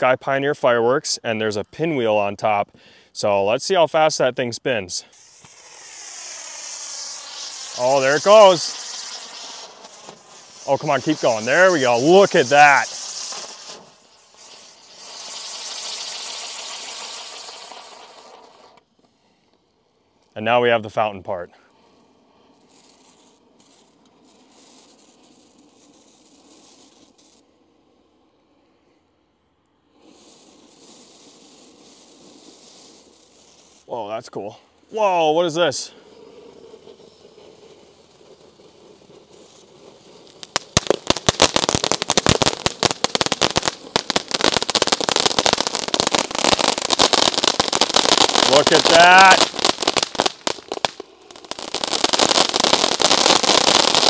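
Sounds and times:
firework spark spray hissing: 4.9 - 19.4, 21.7 - 29.0, 29.7 - 54.0.

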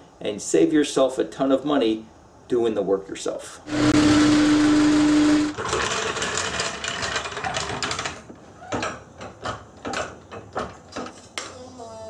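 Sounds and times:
hydraulic floor jack pumping: 3.7 - 8.0.

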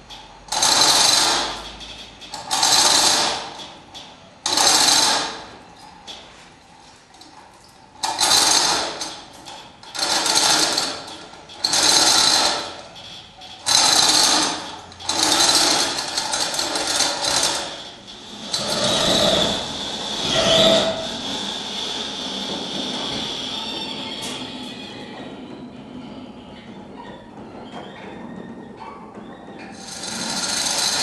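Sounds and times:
chain hoist rattling: 8.0 - 19.9, 29.8 - 31.0.

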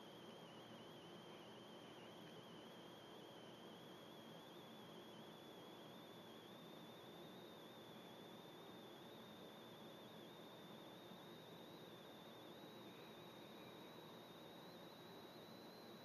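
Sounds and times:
thin high whine: 0.0 - 16.0.

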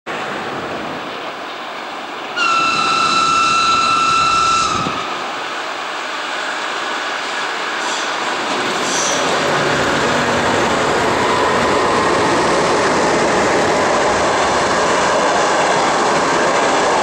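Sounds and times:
train running noise: 0.1 - 17.0
locomotive whistle blast: 2.4 - 5.2.

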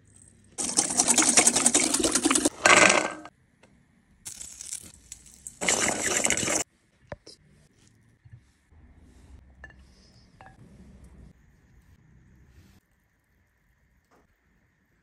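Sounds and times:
walnuts rattling in metal bowl: 0.6 - 3.3.

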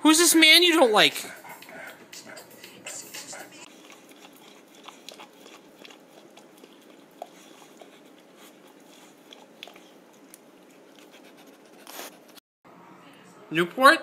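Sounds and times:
dog licking and chewing: 1.3 - 12.1.

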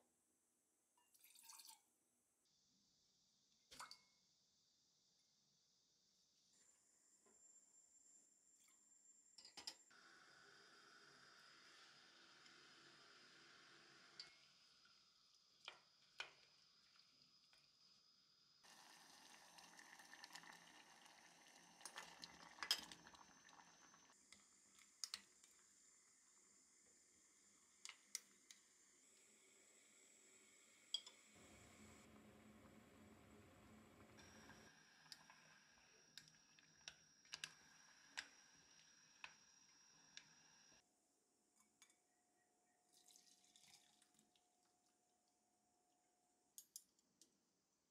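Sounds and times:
syrup simmering hiss: 9.9 - 40.8.

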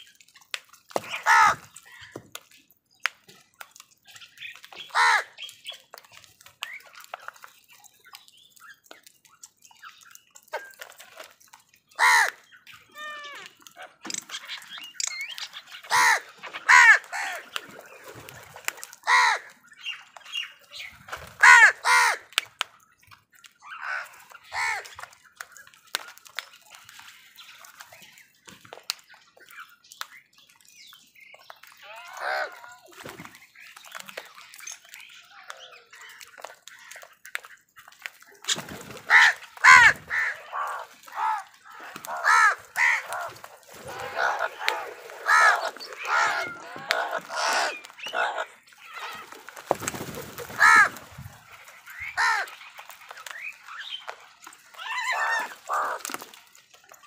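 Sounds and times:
crows cawing: 1.2 - 1.6, 4.9 - 5.3, 12.0 - 12.4, 15.9 - 17.5, 19.0 - 19.5, 21.4 - 22.3, 23.8 - 24.9, 39.1 - 49.2, 49.9 - 51.0, 52.2 - 52.5, 54.9 - 56.0.

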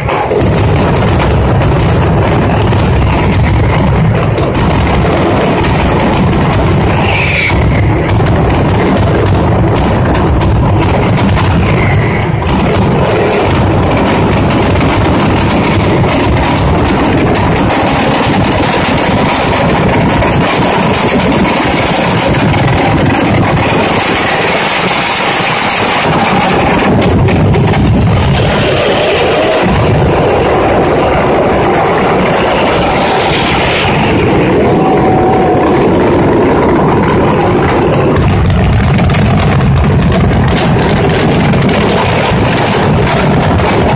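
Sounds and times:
firecrackers exploding in a barrage: 0.0 - 43.9.

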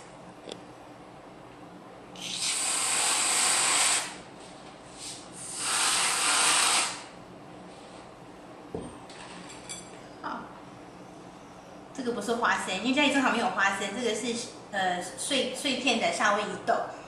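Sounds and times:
aerosol cream can spraying: 5.5 - 7.0.

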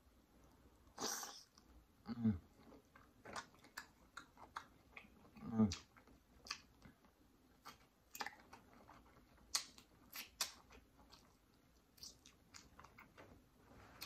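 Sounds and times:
chewing and biting food: 2.6 - 13.2.

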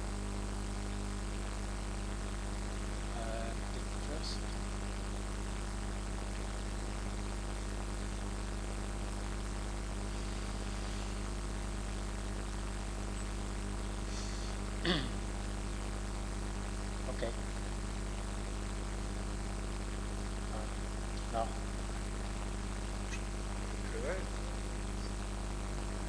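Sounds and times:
electrical mains hum: 0.0 - 26.0
faint hiss: 9.9 - 11.5, 14.0 - 15.2.

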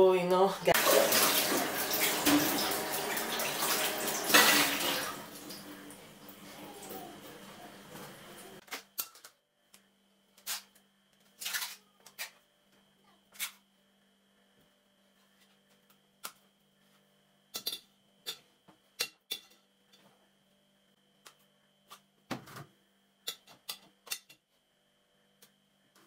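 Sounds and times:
tap water running into sink: 0.8 - 5.7.

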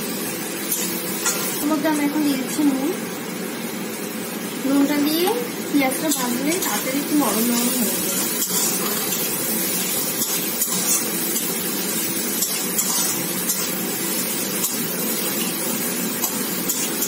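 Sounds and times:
onions sizzling in oil: 0.0 - 17.0
spatula scraping a pan: 7.6 - 15.5.

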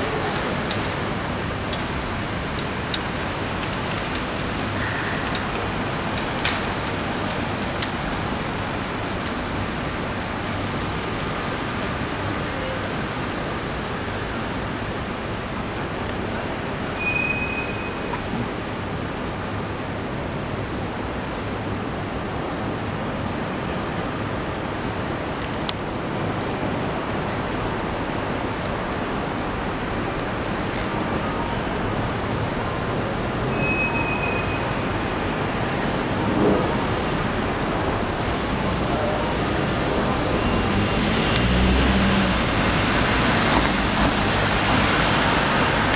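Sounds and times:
passing cars: 34.4 - 45.9.

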